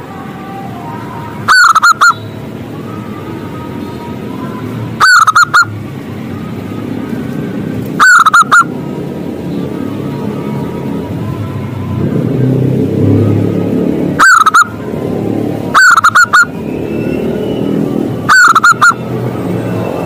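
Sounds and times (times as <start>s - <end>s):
dove calling: 1.4s - 2.5s, 5.0s - 5.8s, 7.9s - 8.7s, 14.2s - 14.8s, 15.7s - 19.0s.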